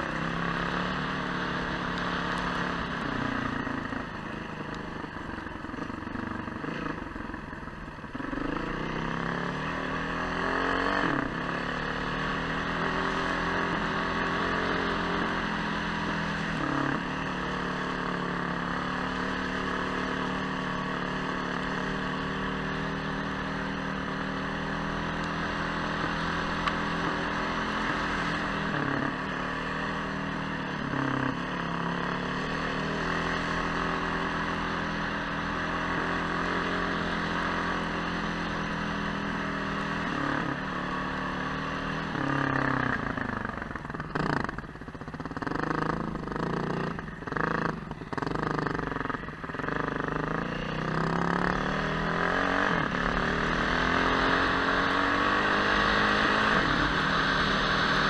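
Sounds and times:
vehicle engine running: 0.0s - 58.0s.

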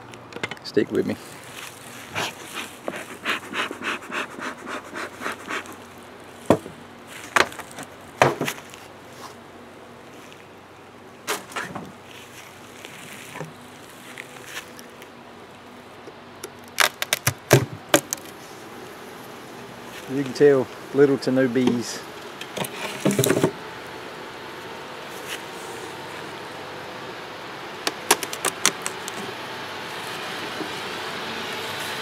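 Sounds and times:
honeybees buzzing: 1.2s - 11.2s, 17.1s - 32.0s
bee smoker bellows puffing: 1.9s - 5.9s
wooden knocks of hive covers: 22.4s - 23.6s
fast clicks: 27.8s - 29.2s.

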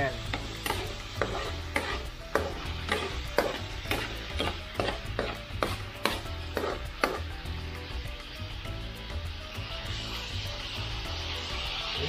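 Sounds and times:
spatula scraping frying pan: 0.0s - 8.3s
food sizzling in oil: 0.0s - 12.0s.

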